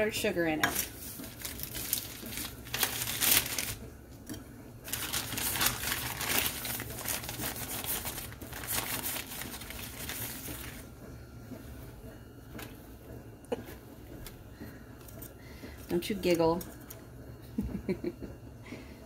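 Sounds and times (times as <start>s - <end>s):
plastic bag crinkling: 0.6s - 3.9s, 4.9s - 10.9s.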